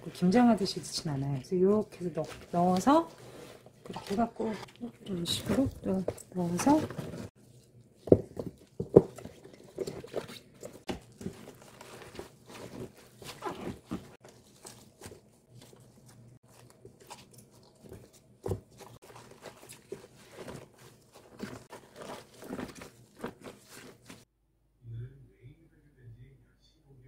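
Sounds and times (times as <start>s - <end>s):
wet crunching of cabbage leaves: 8.9s - 24.3s.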